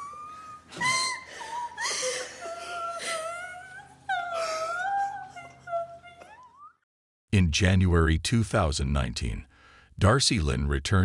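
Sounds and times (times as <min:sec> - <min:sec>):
girl sobbing and wailing: 0:00.0 - 0:06.7.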